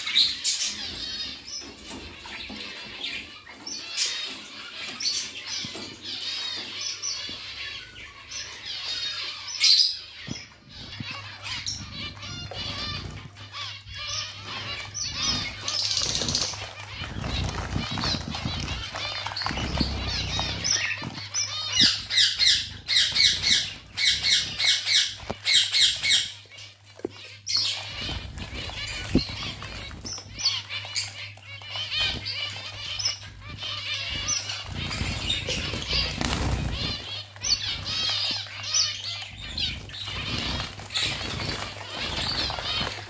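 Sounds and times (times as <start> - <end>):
finches calling: 0.0 - 43.0
wings fluttering: 10.2 - 26.3, 27.0 - 43.0.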